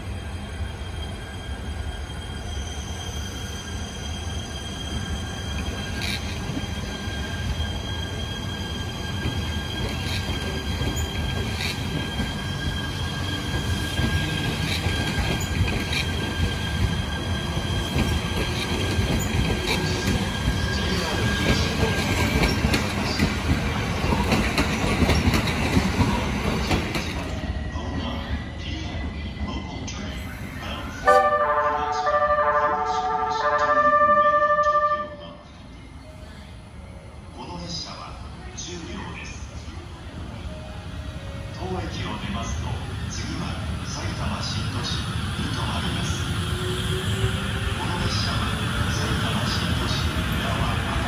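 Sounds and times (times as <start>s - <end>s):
train wheels rumbling: 0.0s - 27.9s.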